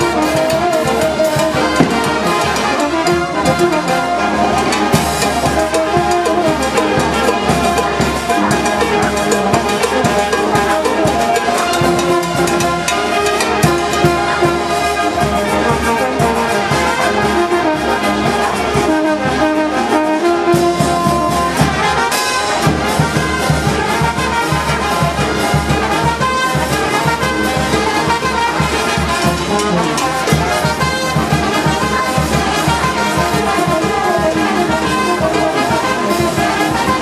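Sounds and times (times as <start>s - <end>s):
steady drum beat: 0.0s - 17.0s, 18.4s - 37.0s
marching brass band playing: 0.0s - 37.0s.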